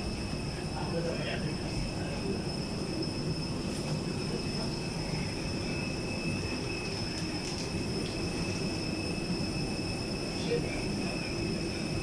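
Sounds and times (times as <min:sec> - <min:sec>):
airport machinery drone: 0:00.0 - 0:12.0
faint high-pitched whines: 0:00.0 - 0:12.0.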